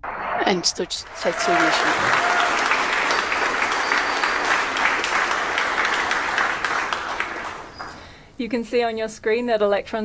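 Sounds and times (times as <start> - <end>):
crowd applauding: 1.0 - 8.1.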